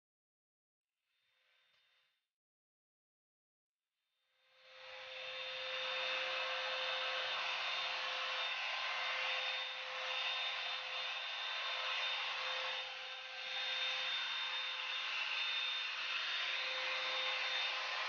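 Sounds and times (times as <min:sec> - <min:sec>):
hot-air brush blowing with motor whine: 0:04.7 - 0:18.0.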